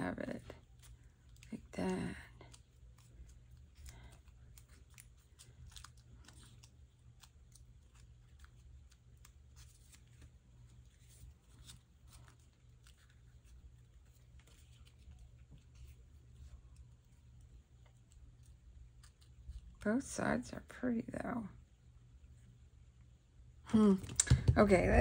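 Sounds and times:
stiff paper crinkling: 0.0 - 19.9
low steady hum: 0.0 - 25.0.

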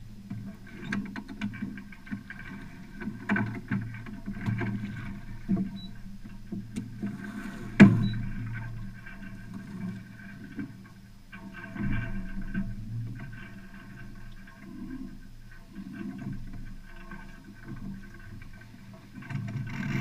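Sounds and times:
low hum: 0.0 - 20.0
rigging knocks and creaks: 0.3 - 14.7, 15.9 - 20.0.

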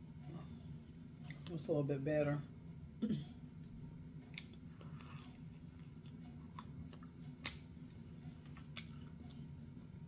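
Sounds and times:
steady low hum: 0.0 - 10.0
person chewing: 3.6 - 9.5.

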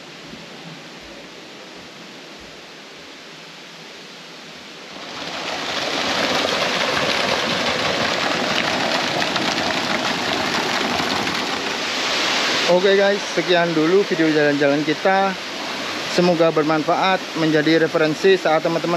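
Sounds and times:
faint steady hiss: 0.0 - 18.9
waterfall rushing into pool: 4.8 - 18.9.

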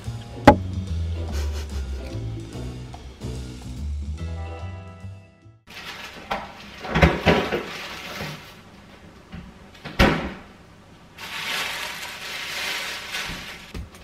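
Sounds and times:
plastic bag rustling: 5.7 - 8.6, 11.2 - 14.0.

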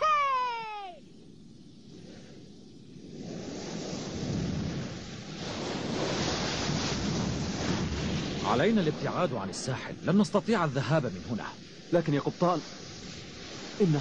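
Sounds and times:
surf washing on rocky shore: 1.8 - 14.0.

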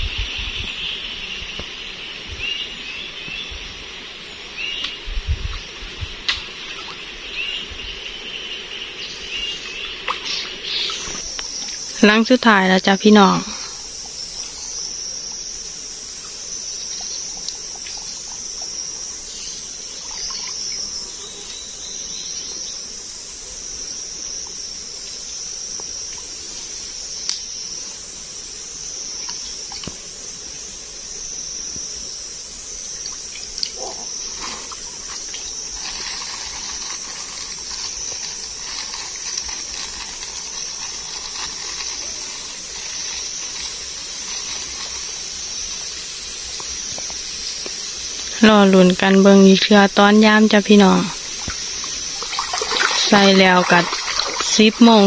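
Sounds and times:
insects buzzing: 0.0 - 55.0
water sloshing and splashing: 51.2 - 55.0.

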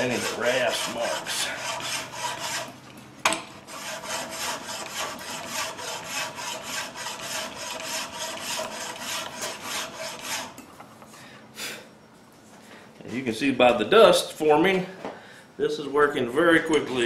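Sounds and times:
hand file stroking wood: 0.0 - 2.8, 3.7 - 10.6.

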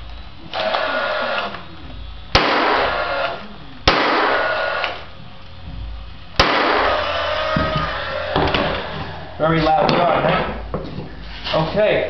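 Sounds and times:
nail gun shots: 2.3 - 5.0, 6.4 - 8.9.

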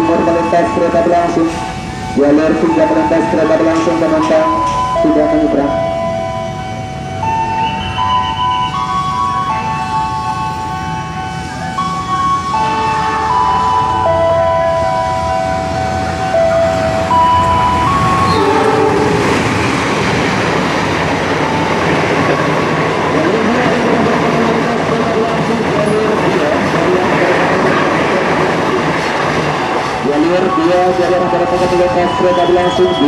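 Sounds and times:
train passing at speed: 0.0 - 33.0
held pitched notes: 12.4 - 20.4.

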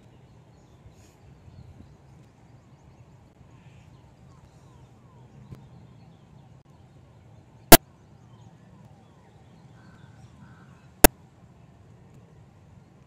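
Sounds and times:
crows cawing: 9.8 - 10.9.

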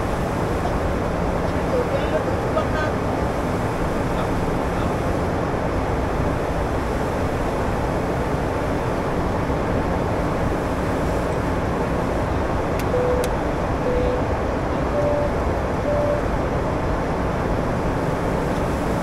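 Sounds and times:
jet engines rumbling: 0.0 - 19.0
faint hum: 12.8 - 16.3.

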